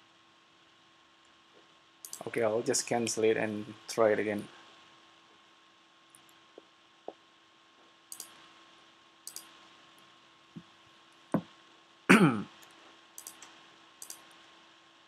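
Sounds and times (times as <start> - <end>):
faint steady hum: 0.0 - 15.0
computer mouse clicks: 2.0 - 2.3, 8.1 - 8.4, 9.2 - 9.6, 12.6 - 14.4.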